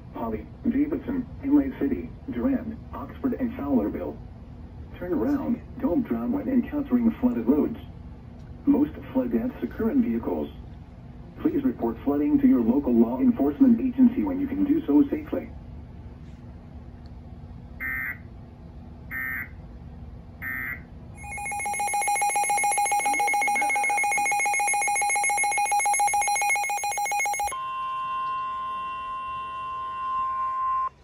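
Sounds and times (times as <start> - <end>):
rapidly pulsing radio alarm: 17.8 - 18.2, 19.1 - 19.6, 20.4 - 31.0
raspy digital code bursts: 20.4 - 27.6
steady alert tone: 20.4 - 30.9.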